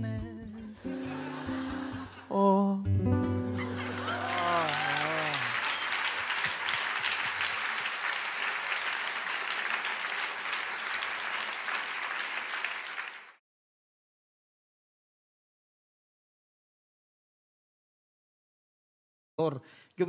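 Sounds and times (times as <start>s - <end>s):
audience applauding: 3.6s - 13.4s.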